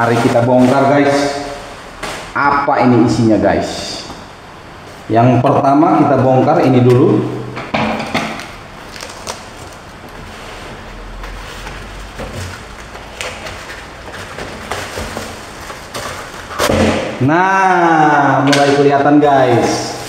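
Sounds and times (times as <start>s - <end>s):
cardboard rustling: 8.9s - 16.7s.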